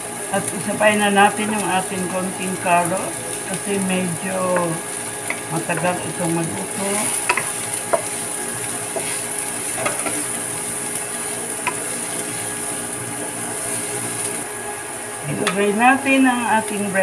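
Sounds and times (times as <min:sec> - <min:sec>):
vegetables sizzling in a frying pan: 0:00.0 - 0:17.0
wooden spatula knocking pan: 0:07.0 - 0:08.2, 0:08.9 - 0:10.2.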